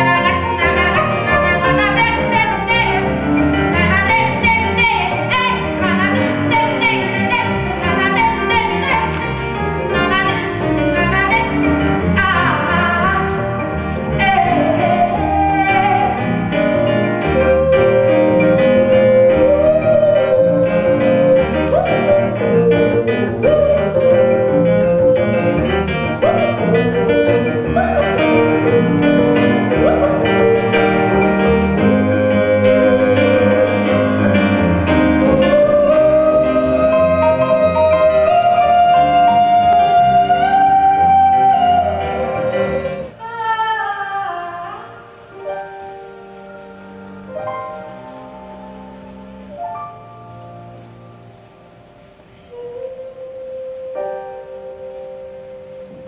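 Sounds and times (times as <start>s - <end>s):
double bass: 0.0s - 43.2s
piano: 0.0s - 56.0s
woman singing long notes: 17.2s - 45.0s.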